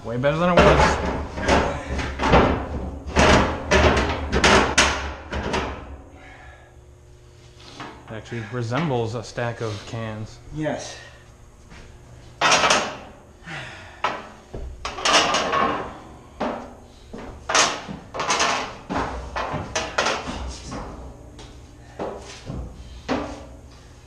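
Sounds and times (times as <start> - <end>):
metal cans clanking and thumping: 0.4 - 5.8, 12.4 - 13.0, 14.9 - 16.6.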